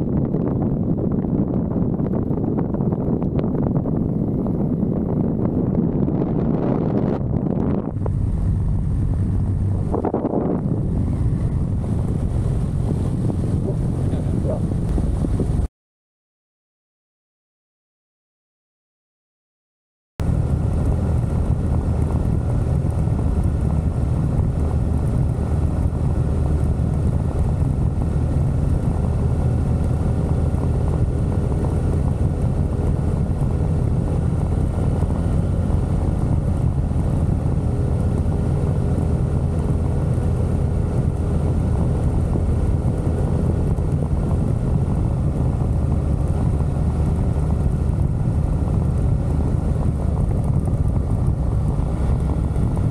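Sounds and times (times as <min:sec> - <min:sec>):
motorcycle engine running: 0:00.0 - 0:15.7, 0:20.2 - 0:52.9
wind rush on microphone: 0:00.0 - 0:15.7, 0:20.2 - 0:52.9.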